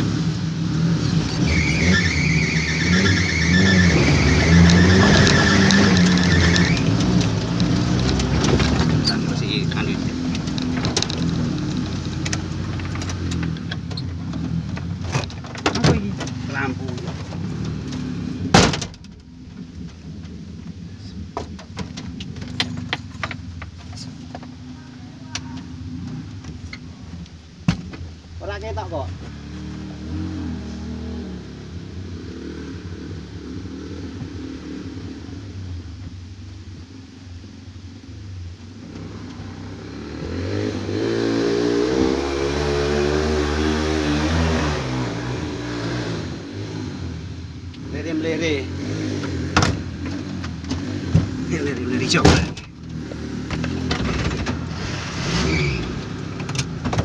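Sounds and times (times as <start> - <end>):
vehicle engine running: 0.0 - 40.1.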